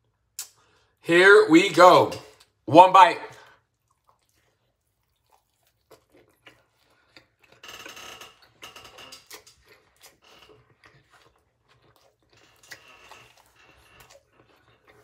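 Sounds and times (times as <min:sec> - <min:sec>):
wet chewing: 0:03.4 - 0:15.0.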